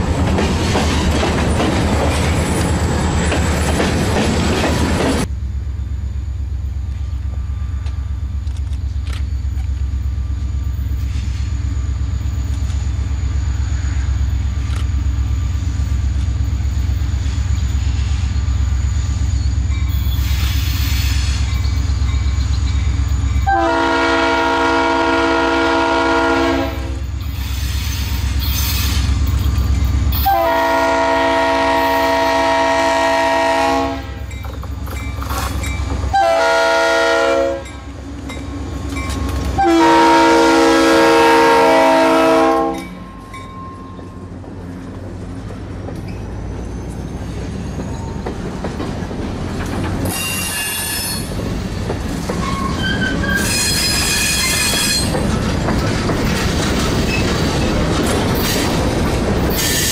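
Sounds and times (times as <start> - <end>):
train wheels clickety-clack: 0.0 - 5.3, 26.4 - 33.6, 34.2 - 36.4, 37.5 - 39.6, 42.7 - 59.9
locomotive engine rumble: 0.0 - 50.5, 51.2 - 59.9
high wheel squeals: 16.9 - 23.6, 27.0 - 30.4, 46.0 - 48.6, 50.0 - 51.6, 52.3 - 55.3
locomotive air horn blasts: 23.4 - 27.1, 30.2 - 34.3, 36.1 - 37.8, 39.6 - 42.9.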